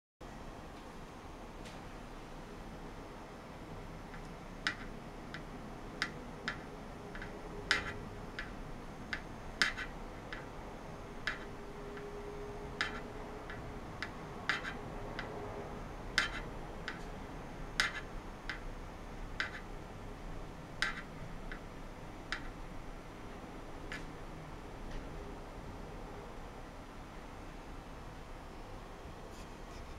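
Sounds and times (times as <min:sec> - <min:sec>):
sharp ticks on metal box: 0:04.1 - 0:10.6, 0:11.2 - 0:15.4, 0:16.1 - 0:18.8, 0:19.4 - 0:19.8, 0:20.8 - 0:21.7, 0:22.3 - 0:22.6.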